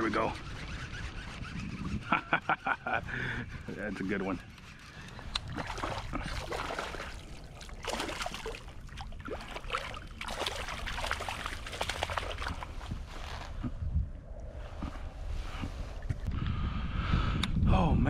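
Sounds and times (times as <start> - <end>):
water splashing and dripping: 5.3 - 12.7.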